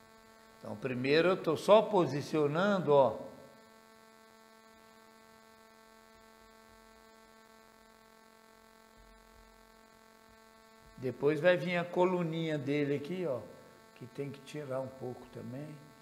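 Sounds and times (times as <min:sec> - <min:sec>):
faint electrical hum: 0:00.0 - 0:16.0.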